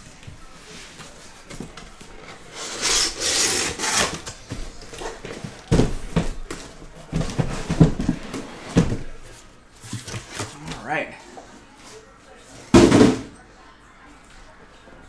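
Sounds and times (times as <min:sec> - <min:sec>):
box bumping with dull knocks: 0:04.6 - 0:09.1.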